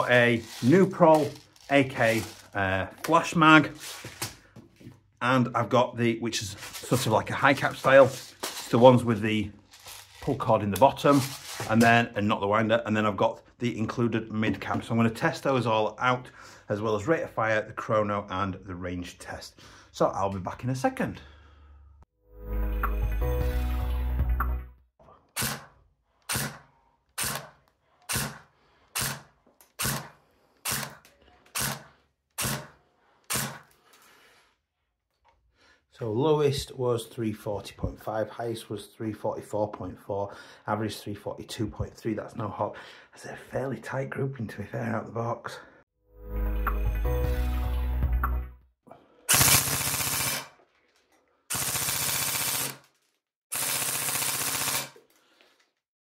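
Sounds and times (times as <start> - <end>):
airsoft rifle full-auto bursts: 26.3 - 26.6, 27.2 - 27.5, 28.1 - 28.4, 29.0 - 31.0, 49.3 - 50.6, 51.5 - 52.9, 53.5 - 55.0
airsoft gun shots: 49.3 - 50.5.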